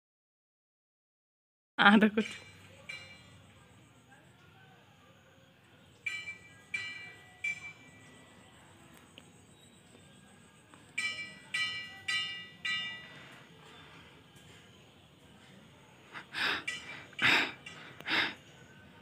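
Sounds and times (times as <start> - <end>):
bright metallic chimes: 6.0 - 8.6, 10.9 - 13.5.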